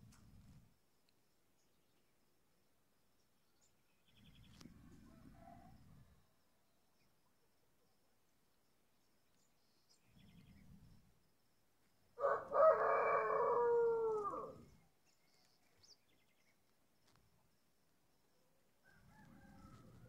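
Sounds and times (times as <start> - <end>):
rooster crowing: 12.2 - 14.6, 18.8 - 20.0.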